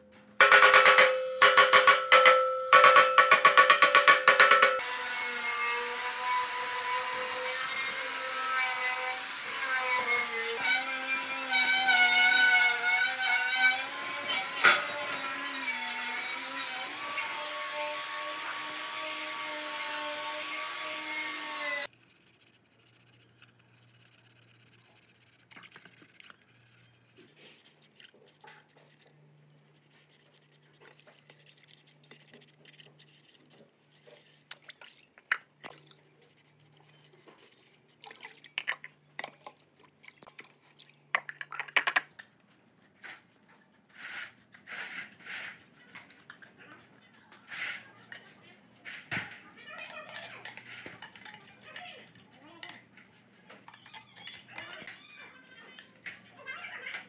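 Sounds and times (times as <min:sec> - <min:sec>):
angle grinder on steel: 0:03.6 - 0:21.9
brush scrubbing: 0:21.8 - 0:35.1, 0:35.7 - 0:38.5, 0:42.9 - 0:49.1.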